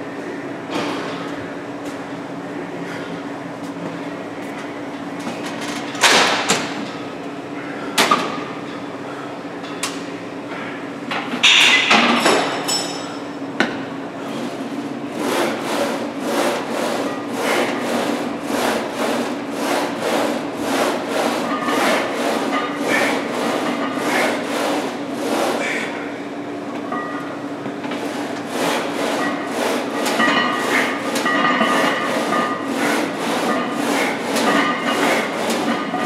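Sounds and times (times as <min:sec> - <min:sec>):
leg press machine clanking: 0:05.3 - 0:07.0, 0:11.2 - 0:26.0, 0:26.7 - 0:36.0.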